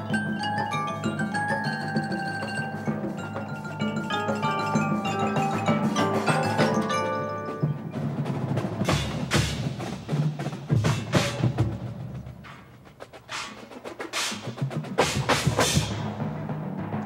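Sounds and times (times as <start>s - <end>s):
mallet keyboards playing a run: 0.0s - 9.6s
sharp percussion strikes: 0.0s - 17.0s.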